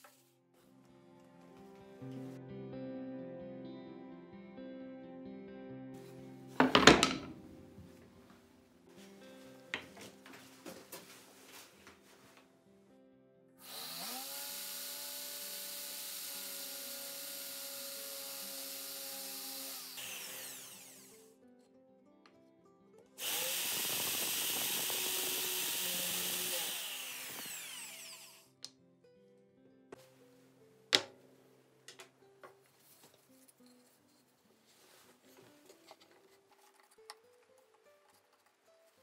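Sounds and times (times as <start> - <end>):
background music: 0.2 - 13.6, 25.6 - 39.0
electric drill boring into wood: 13.6 - 21.3, 23.2 - 28.5.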